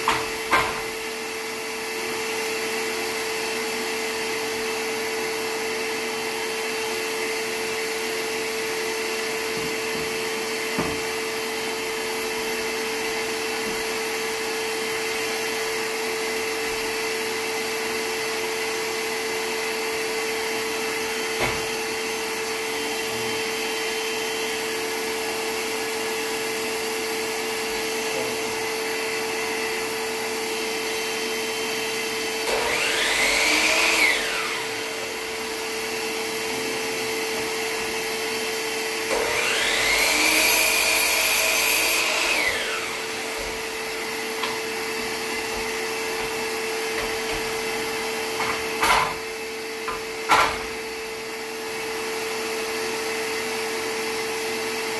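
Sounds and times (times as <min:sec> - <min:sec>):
shop vacuum humming: 0:00.0 - 0:54.9
miter saw motor spinning: 0:32.4 - 0:35.8, 0:39.0 - 0:44.4.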